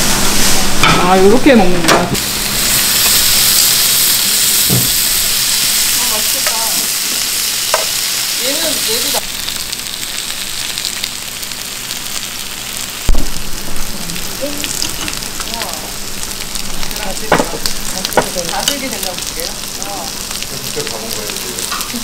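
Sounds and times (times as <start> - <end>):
pork sizzling on a grill: 0.0 - 22.0
earthenware pot thump: 4.7 - 5.0.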